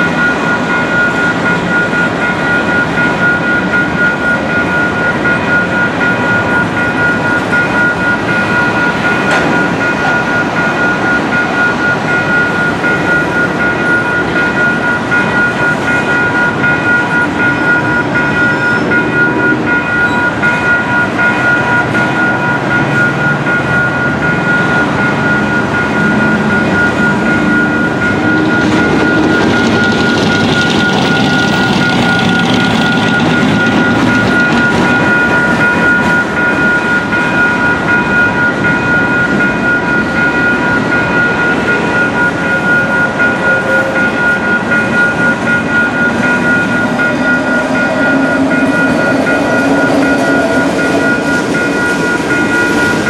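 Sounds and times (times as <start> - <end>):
crossing warning bell ringing: 0.0 - 53.0
train wheels rumbling over rails: 0.0 - 53.0.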